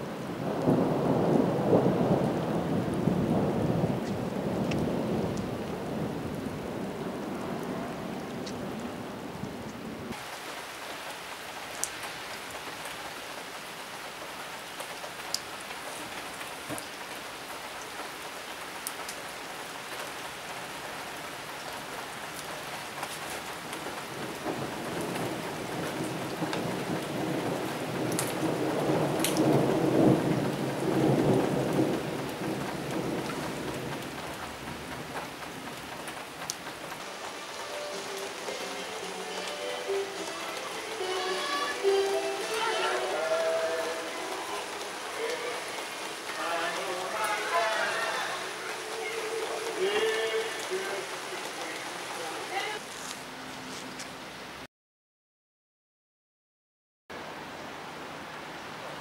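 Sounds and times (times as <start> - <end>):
steady rain falling: 0.0 - 54.7, 57.1 - 59.0
thunder rumble: 0.2 - 10.2, 23.8 - 37.6
rain drop ticks: 2.8 - 5.8, 8.4 - 8.7, 9.4 - 43.1, 44.2 - 53.2.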